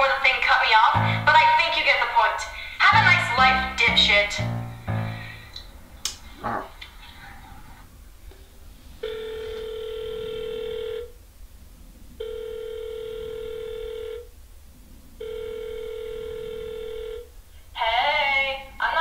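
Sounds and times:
telephone ringback tone: 0:09.0 - 0:11.1, 0:12.2 - 0:14.3, 0:15.2 - 0:17.3.

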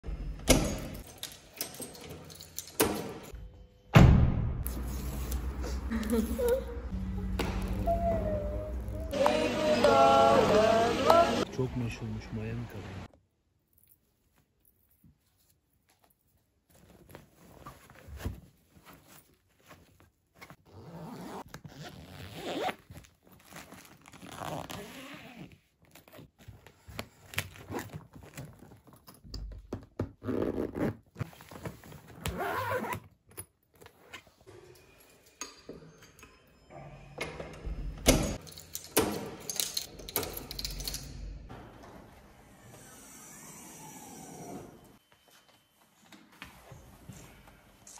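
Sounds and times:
clothes rustling and scraping: 0:14.0 - 0:29.3, 0:30.2 - 0:34.5.

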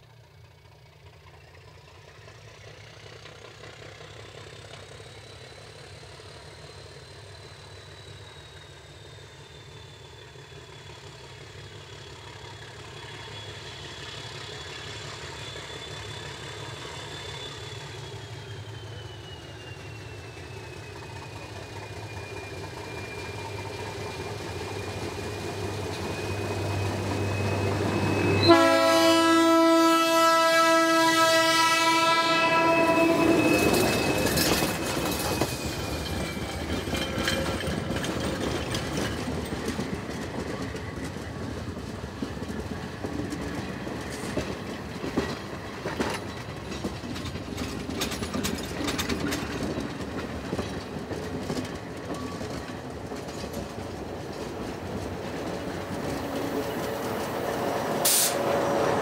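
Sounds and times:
diesel locomotive engine: 0:00.0 - 0:59.0
long train horn blast: 0:27.9 - 0:34.1, 0:57.7 - 0:59.0
wheels clattering over rail joints: 0:33.4 - 0:58.3.

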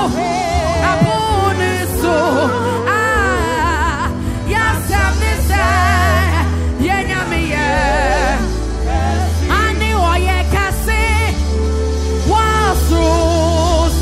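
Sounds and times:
man singing with vibrato: 0:00.0 - 0:11.2
band with bass and keyboard: 0:00.0 - 0:14.0.

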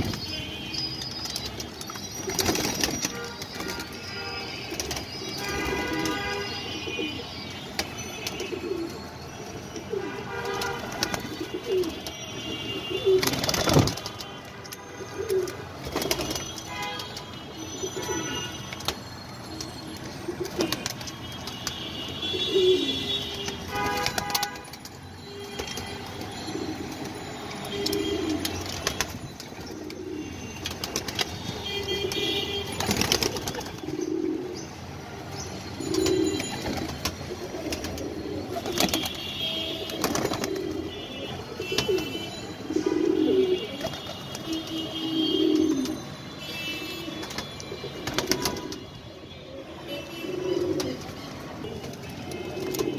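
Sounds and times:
pigeons cooing: 0:08.4 - 0:09.0, 0:11.0 - 0:13.9, 0:15.0 - 0:16.3, 0:22.2 - 0:23.1, 0:26.5 - 0:29.0, 0:29.6 - 0:31.1, 0:31.9 - 0:34.8, 0:35.7 - 0:39.1, 0:39.7 - 0:44.0, 0:44.9 - 0:46.0, 0:49.5 - 0:51.5, 0:52.3 - 0:52.9.

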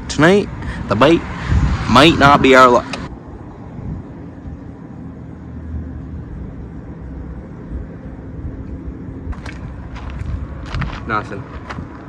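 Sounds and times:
wind buffeting microphone: 0:00.0 - 0:12.0
faint steady hum: 0:02.4 - 0:10.8.

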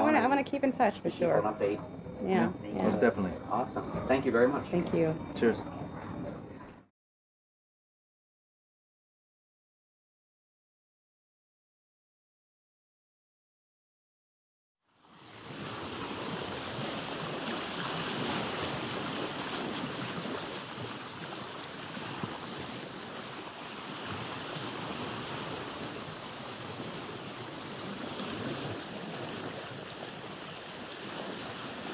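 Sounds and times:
wind: 0:14.9 - 0:31.9
surf rushing: 0:15.1 - 0:31.9.

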